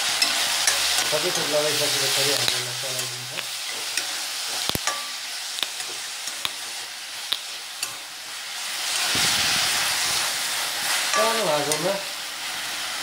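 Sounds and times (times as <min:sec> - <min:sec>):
food sizzling in oil: 0:00.0 - 0:13.0
spoon clicking against pan: 0:02.3 - 0:08.0.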